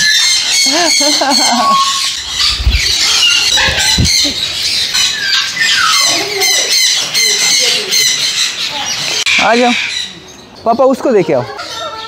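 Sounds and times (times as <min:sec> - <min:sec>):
parrots squawking and chattering: 0:00.0 - 0:12.0
dull low thumps: 0:02.2 - 0:04.5.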